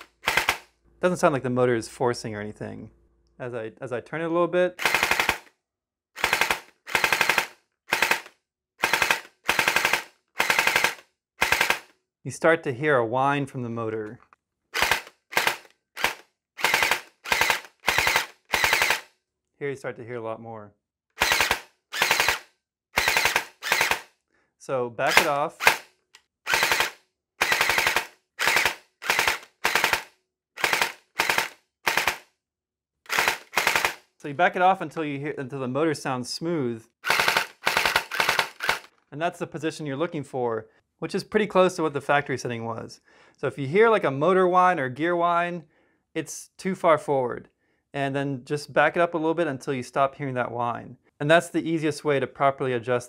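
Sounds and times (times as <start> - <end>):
electric gearbox firing bursts: 0.0 - 0.7, 4.8 - 5.5, 6.2 - 11.9, 14.8 - 19.1, 21.2 - 24.1, 25.1 - 25.9, 26.5 - 32.3, 33.1 - 34.0, 37.0 - 38.9.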